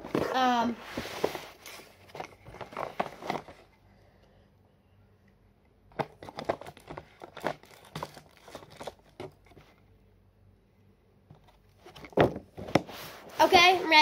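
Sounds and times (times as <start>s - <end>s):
rustling and crinkling items: 0.0s - 3.9s, 5.9s - 10.0s, 11.3s - 14.0s.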